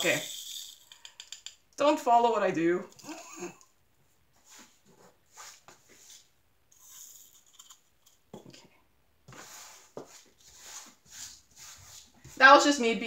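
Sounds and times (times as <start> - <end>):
plastic beads swept by hand: 4.4 - 7.5, 9.3 - 12.6.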